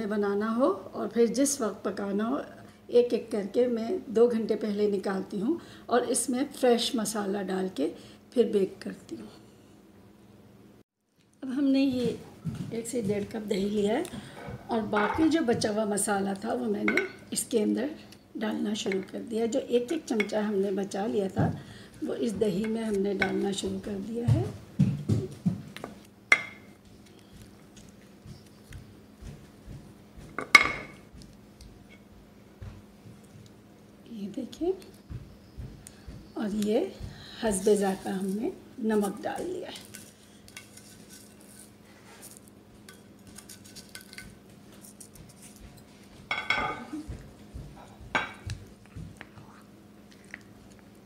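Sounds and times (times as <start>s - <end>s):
spoon scraping ceramic bowl: 39.8s - 45.5s.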